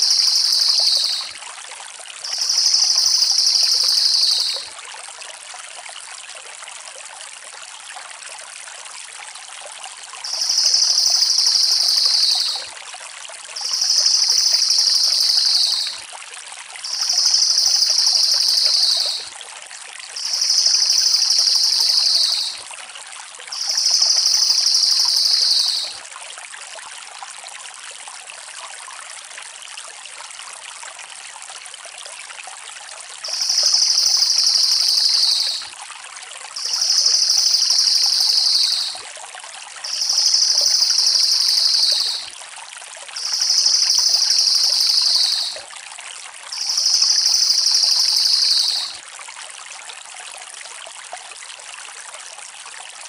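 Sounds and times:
jay rattling call: 0:16.9 - 0:19.1, 0:36.6 - 0:39.0, 0:39.9 - 0:42.2, 0:43.2 - 0:45.6.

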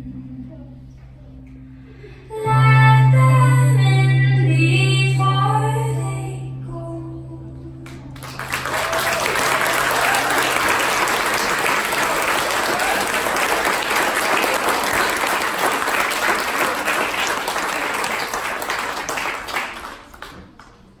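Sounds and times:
audience applause: 0:08.2 - 0:21.0.

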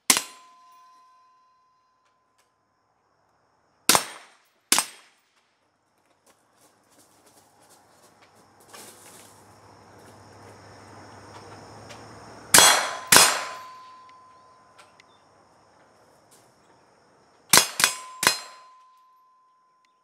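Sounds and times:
steady ringing tone: 0:00.0 - 0:02.4, 0:12.7 - 0:15.2, 0:17.8 - 0:20.0
suppressed rifle shots: 0:12.6 - 0:14.0.

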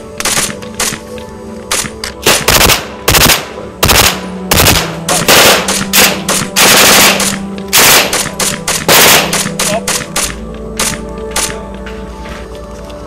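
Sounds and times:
automatic gunfire bursts: 0:01.7 - 0:11.5.

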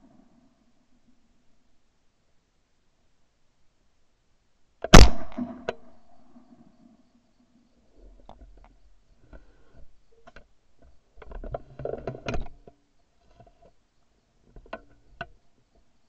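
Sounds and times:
shotgun handling clicks and knocks: 0:04.8 - 0:06.0.

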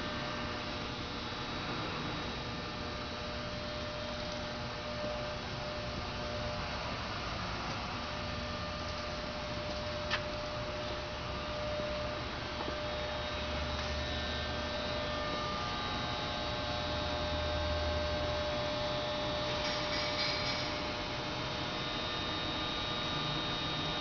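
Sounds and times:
electric pump motor humming: 0:01.0 - 0:19.6.

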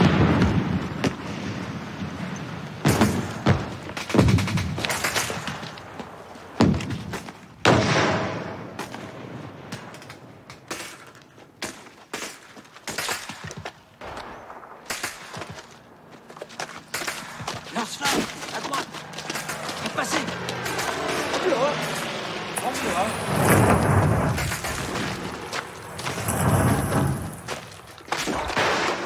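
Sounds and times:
gunshots: 0:00.0 - 0:01.6, 0:02.8 - 0:10.1, 0:10.7 - 0:15.9, 0:16.6 - 0:29.0
heavy explosions: 0:00.0 - 0:05.5, 0:07.6 - 0:09.7, 0:22.6 - 0:29.0.

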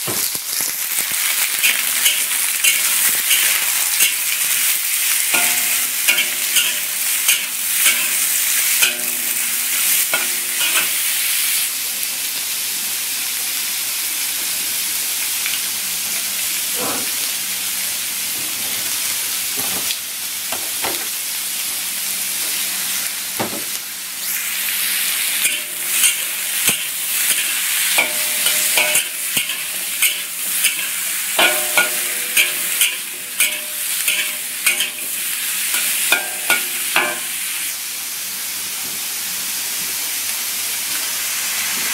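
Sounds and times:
food sizzling in a wok: 0:00.0 - 0:41.9
metal spatula scraping a pan: 0:01.5 - 0:11.1, 0:25.4 - 0:37.4.

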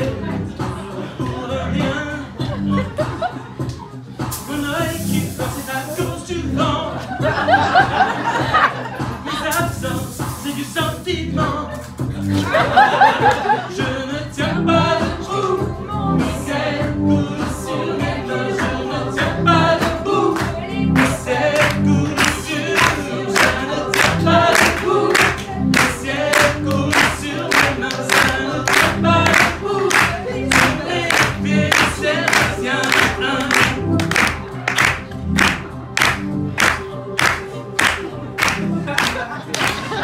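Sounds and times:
music with steady beat: 0:00.0 - 0:40.0
small choir singing: 0:12.5 - 0:35.0, 0:35.6 - 0:40.0.

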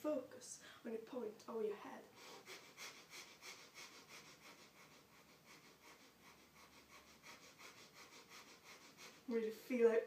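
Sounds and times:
rapid rhythmic nose breathing: 0:02.1 - 0:09.4.

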